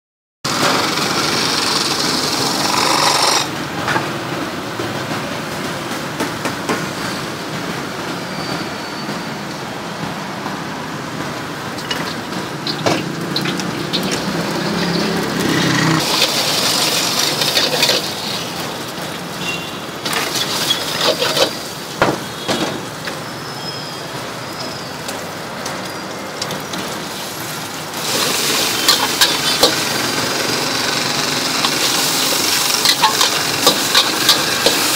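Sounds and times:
gas burner rushing: 0.5s - 4.4s, 10.8s - 23.3s, 25.9s - 34.9s
food sizzling in a wok: 11.8s - 22.4s, 26.0s - 34.9s
metal ladle scraping a wok: 19.5s - 21.6s, 28.0s - 29.9s, 31.6s - 34.9s.

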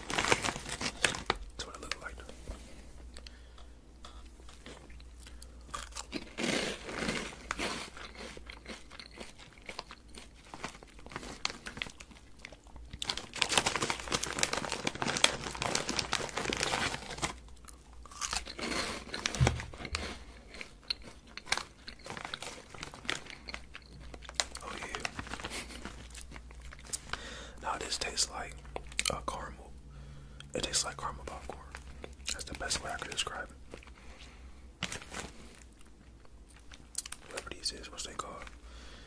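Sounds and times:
crunching snack chip: 5.2s - 27.2s.

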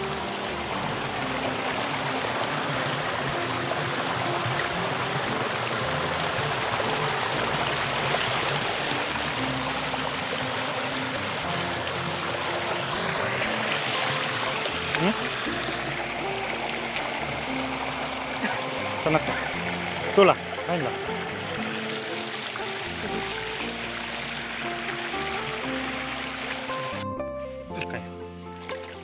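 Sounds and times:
stream water rushing over rocks: 0.0s - 29.0s.

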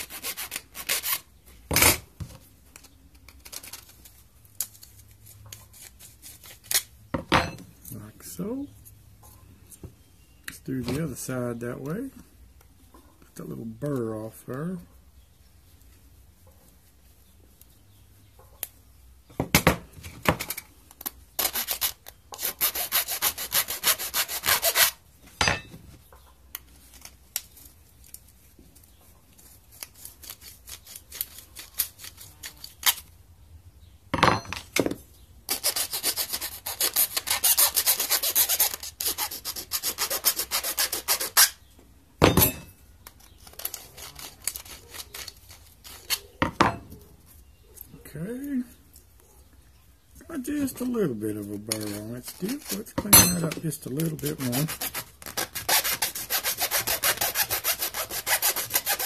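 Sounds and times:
file rasping on metal: 21.4s - 25.0s, 35.5s - 41.6s, 54.3s - 59.0s.

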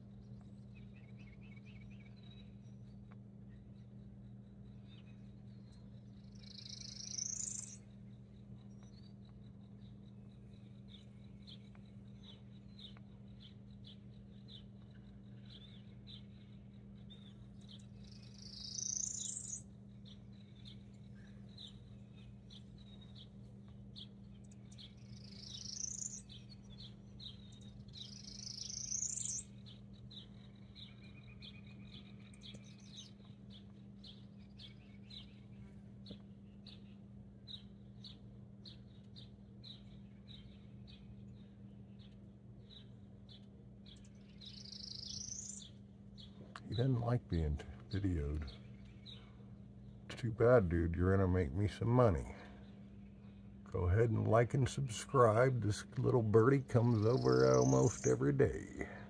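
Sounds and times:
songbirds chipping: 0.0s - 59.0s
steady low hum: 0.0s - 59.0s
loud rising bird call: 28.0s - 29.5s.

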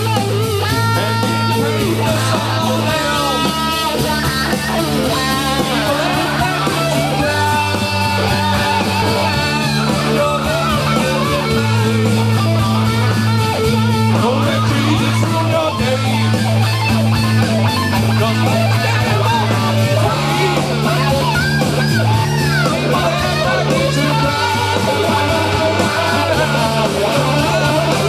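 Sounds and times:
bass line: 0.0s - 28.0s
guitar: 0.0s - 28.0s
person singing: 0.1s - 17.3s, 18.0s - 28.0s.

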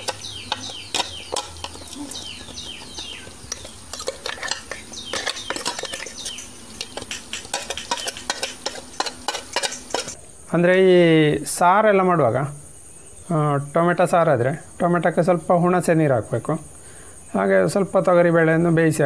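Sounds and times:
high falling chirps: 0.0s - 10.1s.

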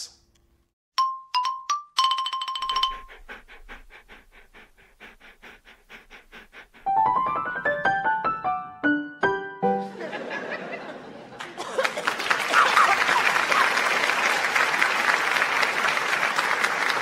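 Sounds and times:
mallet percussion music: 1.0s - 3.3s
xylophone-like rising run: 1.0s - 3.3s
soft ticking rhythm: 1.0s - 3.9s.

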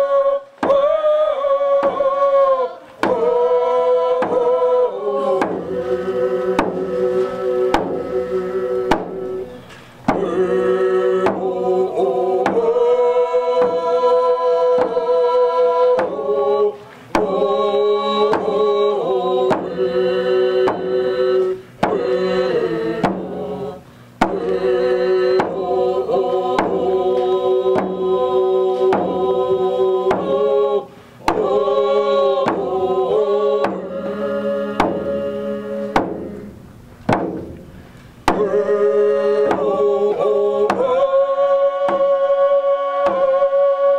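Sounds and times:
group singing in unison: 0.0s - 43.9s
frame drums beating: 3.0s - 12.9s, 14.6s - 15.3s, 18.2s - 19.9s, 20.6s - 30.6s, 31.2s - 41.2s, 41.8s - 43.5s.

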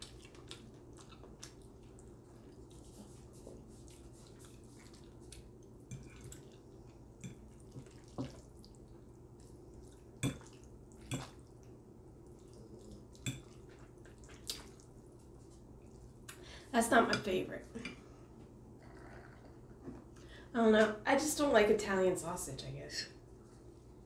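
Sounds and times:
wet eating sounds: 0.0s - 16.6s.

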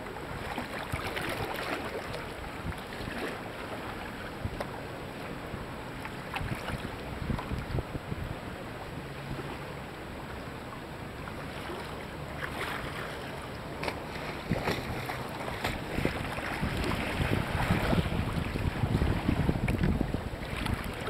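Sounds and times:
paddle strokes splashing: 0.0s - 7.8s, 8.4s - 21.0s
water slapping against kayak: 0.0s - 8.4s, 11.2s - 21.0s
wind on microphone: 5.4s - 9.5s, 14.2s - 21.0s.

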